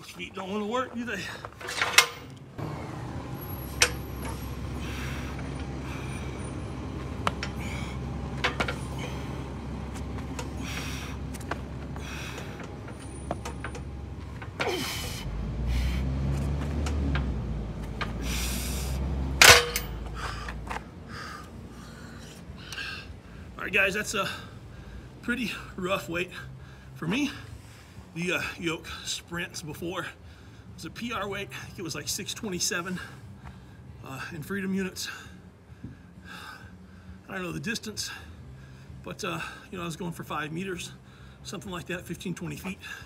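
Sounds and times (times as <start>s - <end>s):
metal clanks: 1.4s - 2.5s, 3.7s - 4.6s, 7.2s - 9.2s, 12.3s - 14.9s, 19.3s - 20.2s
low rumble: 2.4s - 23.5s
hard breathing: 4.3s - 13.6s, 14.2s - 16.3s, 18.0s - 19.2s, 19.8s - 23.6s, 24.2s - 25.8s, 30.2s - 30.8s, 35.0s - 37.3s.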